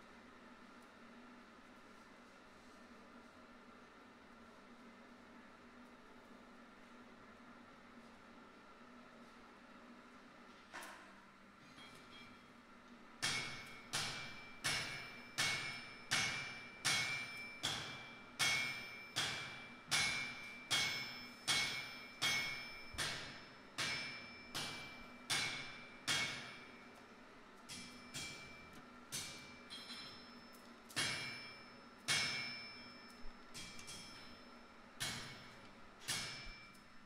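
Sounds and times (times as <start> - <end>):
hammer ringing on anvil: 13.2 - 26.8, 27.7 - 36.8.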